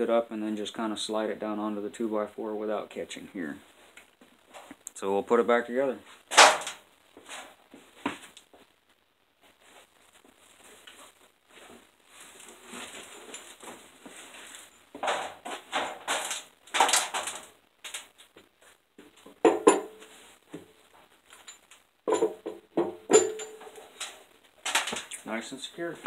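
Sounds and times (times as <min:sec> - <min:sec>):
shuffling and scraping: 0:05.9 - 0:08.8, 0:09.4 - 0:19.4
metallic clunks and knocks: 0:22.1 - 0:23.8.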